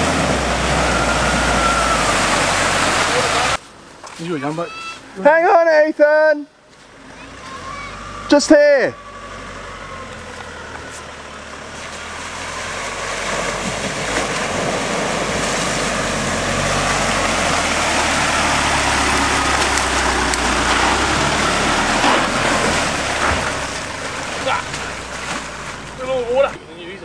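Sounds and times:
water splashing under tyres: 0.0 - 4.3, 9.0 - 26.6
vehicle engine running: 9.0 - 26.6.

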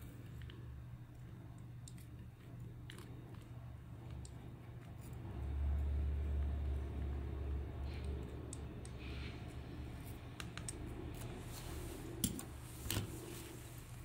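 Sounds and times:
low hum: 0.0 - 14.0
hands clicking and tapping: 10.3 - 10.8.

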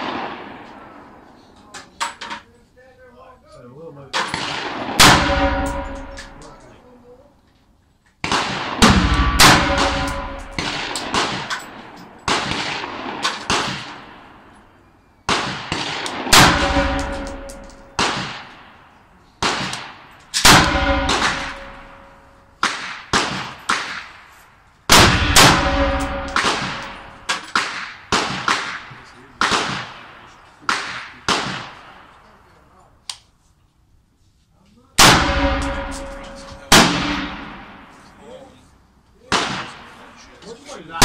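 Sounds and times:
rifle shots echoing: 0.0 - 1.3, 4.1 - 6.9, 8.2 - 14.7, 15.3 - 32.4, 35.0 - 38.2, 39.2 - 40.3.

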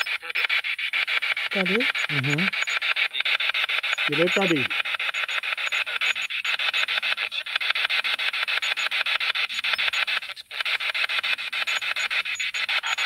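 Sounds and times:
rapid chopping radio static: 0.0 - 13.0.

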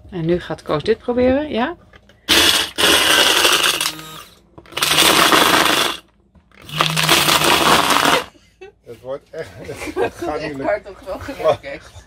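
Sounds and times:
electric blender grinding: 2.3 - 8.4.

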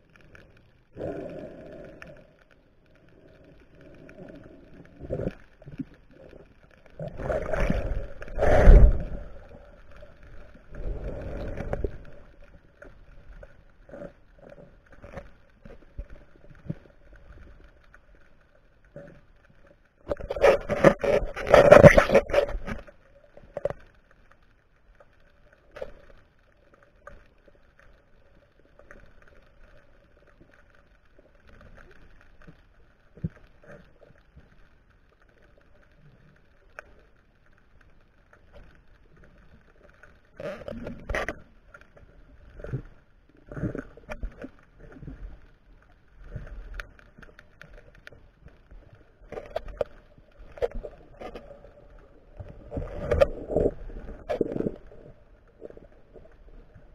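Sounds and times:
faint underwater hum: 0.0 - 56.9
underwater knocks and clunks: 20.0 - 23.9, 46.2 - 56.9.

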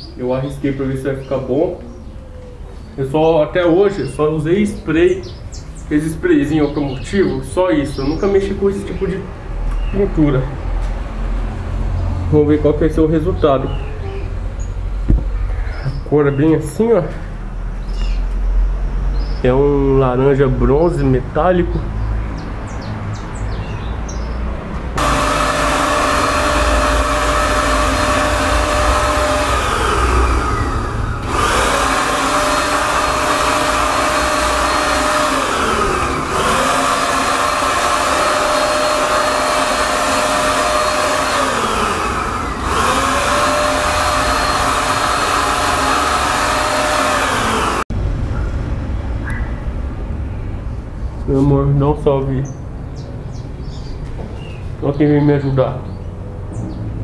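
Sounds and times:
paint spray gun whining: 25.0 - 47.9.

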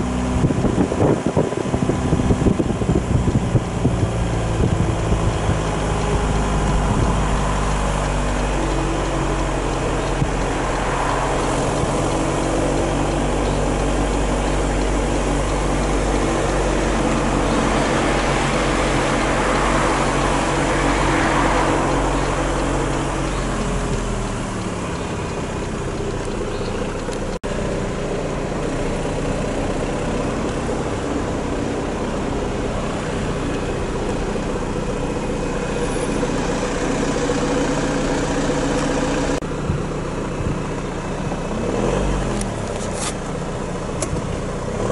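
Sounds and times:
vehicle engine humming: 0.0 - 44.9
vehicle passing by: 4.2 - 39.6.

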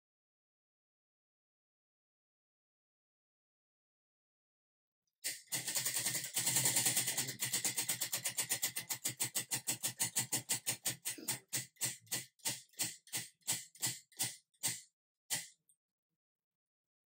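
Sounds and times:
prize wheel clicking: 5.3 - 15.5.

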